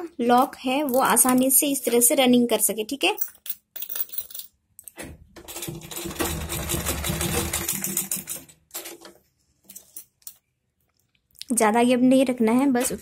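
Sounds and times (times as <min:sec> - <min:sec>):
sewing machine stitching: 0:05.4 - 0:09.0.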